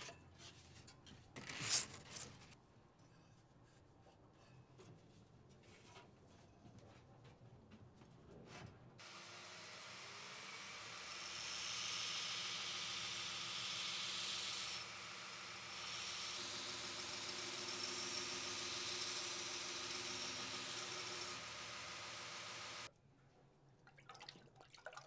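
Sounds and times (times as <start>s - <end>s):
belt grinder grinding steel: 9.0s - 22.9s
grinder motor hum: 9.0s - 22.9s.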